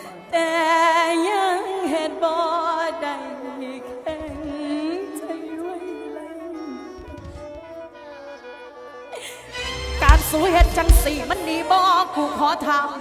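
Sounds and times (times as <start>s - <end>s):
person singing with vibrato: 0.0s - 13.0s
band accompaniment: 9.5s - 11.8s.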